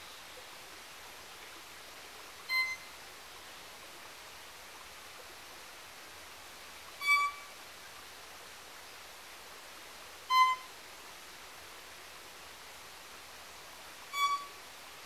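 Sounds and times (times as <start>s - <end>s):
violin bowed notes: 2.5s - 2.8s, 7.0s - 7.4s, 10.3s - 10.7s, 14.1s - 14.6s.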